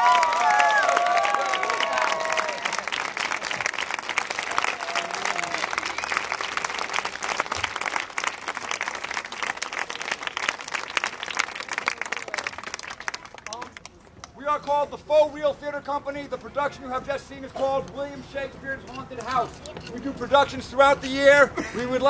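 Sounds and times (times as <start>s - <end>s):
crowd applauding: 0.0s - 14.0s.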